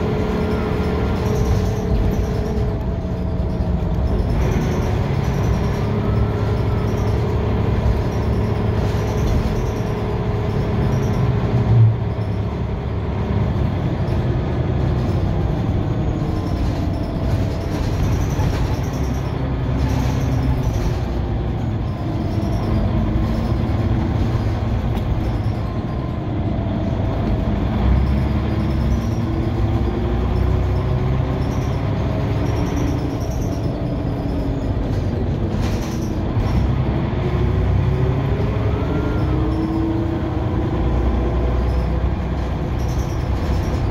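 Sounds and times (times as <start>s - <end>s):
bus engine rumble: 0.0s - 43.9s
knocks and rattles: 14.0s - 26.2s.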